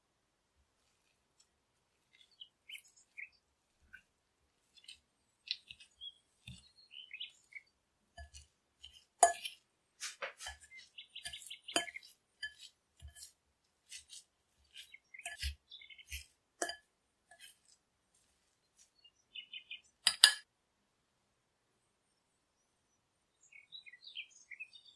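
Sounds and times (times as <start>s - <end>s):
fork clinking on glass bowl: 8.2s - 9.6s, 10.4s - 13.3s, 13.9s - 17.7s, 20.1s - 20.4s.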